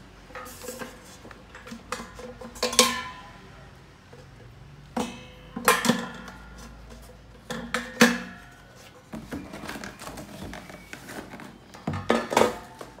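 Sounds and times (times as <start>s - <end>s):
plastic basket knocking and clattering: 9.1s - 13.0s.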